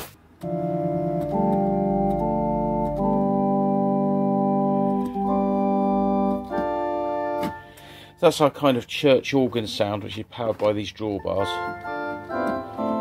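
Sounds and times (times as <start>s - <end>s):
organ playing sustained chords: 0.4s - 8.4s, 11.2s - 13.0s.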